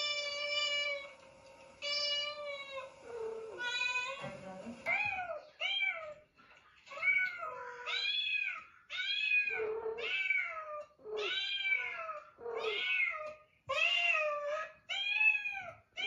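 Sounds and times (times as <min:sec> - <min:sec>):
kitten meowing: 0:01.8 - 0:04.2, 0:07.0 - 0:15.7.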